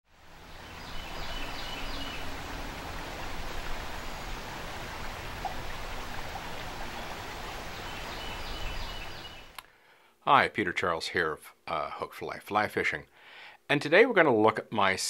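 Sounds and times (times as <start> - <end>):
creek water over rocks: 0.1 - 9.5.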